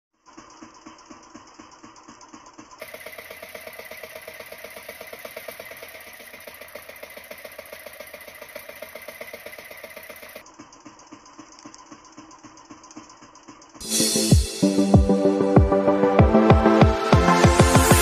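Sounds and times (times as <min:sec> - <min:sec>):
boat engine puttering: 0:02.8 - 0:10.4.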